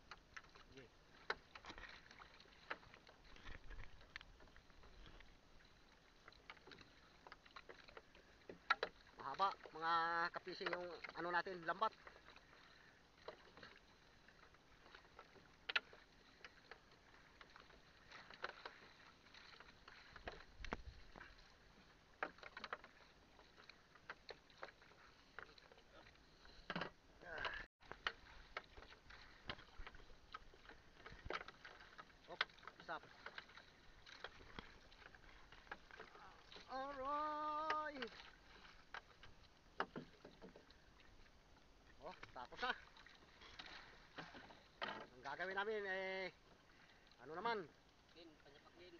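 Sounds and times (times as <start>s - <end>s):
clicks and taps from canoe: 0.0s - 48.9s
paddle splashes: 0.0s - 48.9s
soft wash of water: 0.0s - 48.9s
knocks against hull: 39.8s - 40.8s, 43.6s - 45.2s.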